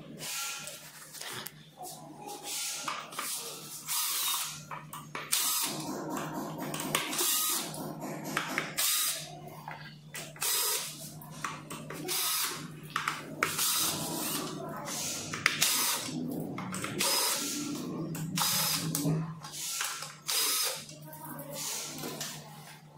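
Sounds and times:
cordless drill whirring: 3.9 - 4.6, 5.3 - 5.7, 7.1 - 7.6, 12.1 - 12.5, 19.6 - 20.8.

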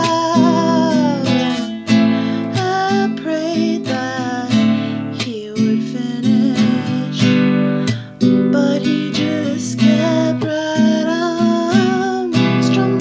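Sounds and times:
acoustic guitar strumming: 0.0 - 13.0
woman singing: 0.0 - 13.0.

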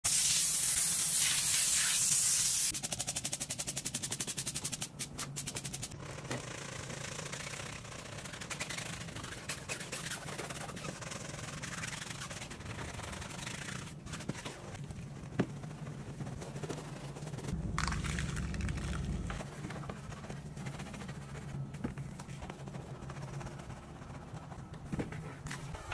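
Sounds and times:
spray hissing: 0.1 - 2.7.

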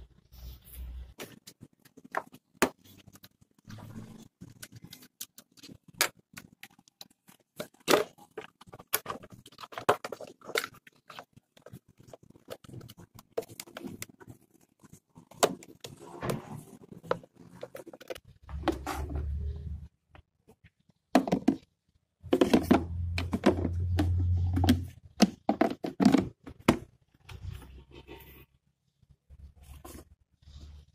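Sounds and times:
plastic clicks and knocks: 21.1 - 21.7, 22.3 - 27.4.

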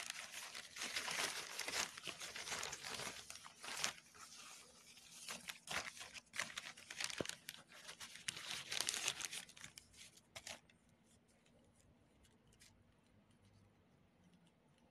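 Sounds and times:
plastic bag crinkling and tearing: 0.0 - 10.6.

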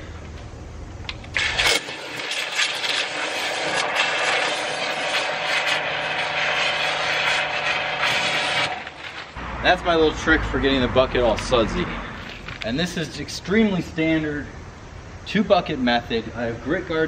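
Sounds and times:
steady hum: 0.0 - 17.0
pressure washer spraying into water: 1.3 - 9.4.

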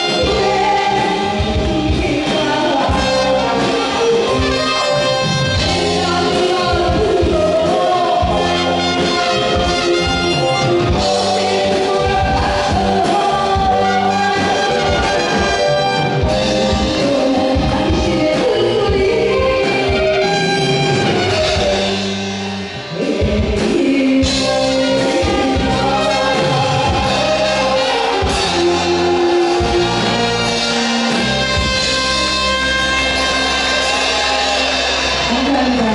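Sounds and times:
woman singing into microphone: 0.0 - 21.9, 22.9 - 30.4, 35.2 - 35.9
live band with brass and drums: 0.0 - 35.9.

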